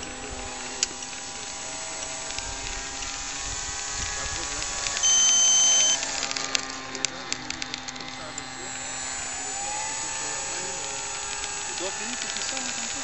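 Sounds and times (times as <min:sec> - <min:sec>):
model airplane motor droning: 0:00.0 - 0:13.0
loud electronic beep: 0:05.0 - 0:06.0.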